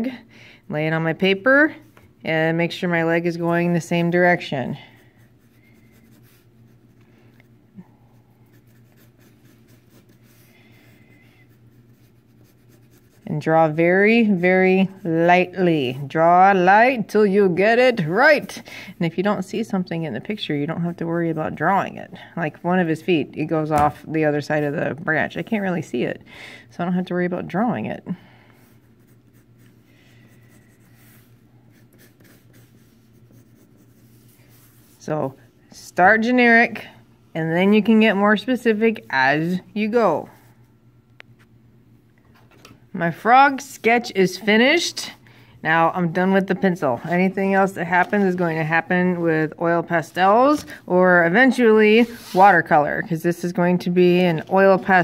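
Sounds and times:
pencil scratching on paper: 0:03.3 - 0:07.0, 0:08.4 - 0:15.1, 0:28.7 - 0:35.0.

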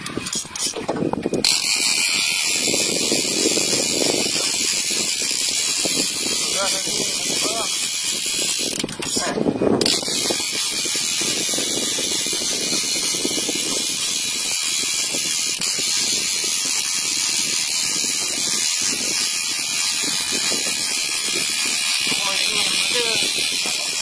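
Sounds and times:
fishing reel ratcheting: 0:00.0 - 0:24.0.

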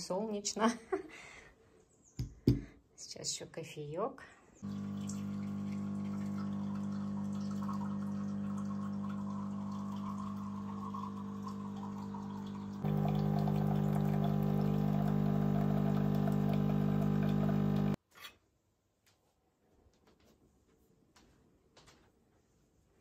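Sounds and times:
coffee machine pump humming: 0:04.6 - 0:18.0
coffee pouring into mug: 0:04.6 - 0:18.0.

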